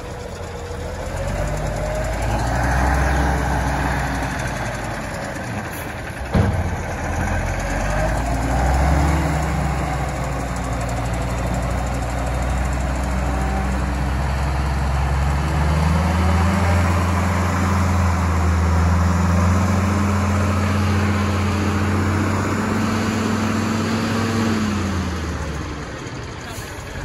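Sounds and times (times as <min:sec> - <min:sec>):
diesel truck engine revving: 0:00.0 - 0:27.0.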